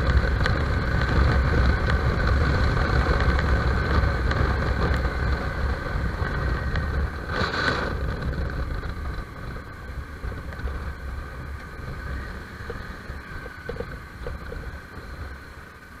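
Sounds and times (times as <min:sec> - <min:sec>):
motorcycle engine running low: 0:00.0 - 0:16.0
wind noise on camera: 0:00.0 - 0:16.0.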